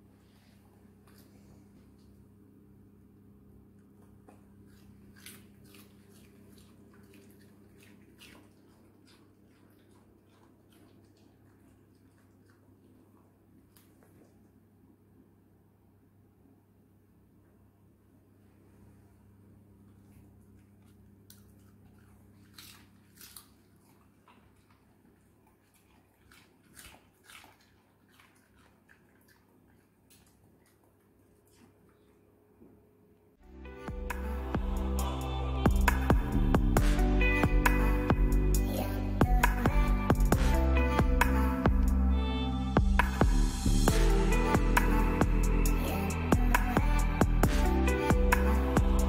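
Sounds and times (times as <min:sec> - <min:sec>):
low steady hum: 0:00.0 - 0:49.0
dog crunching cabbage: 0:03.9 - 0:14.5, 0:19.9 - 0:32.3.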